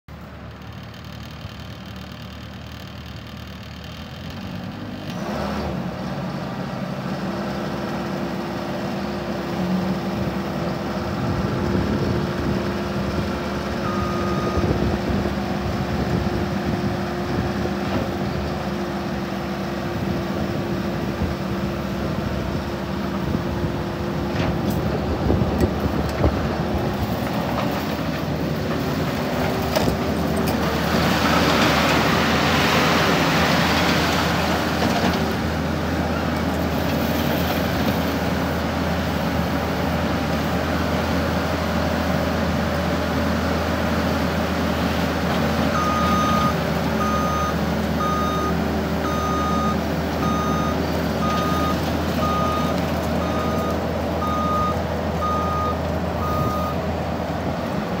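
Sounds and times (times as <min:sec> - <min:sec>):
diesel engine running: 0:00.1 - 0:58.0
backup alarm beeping: 0:45.8 - 0:56.8.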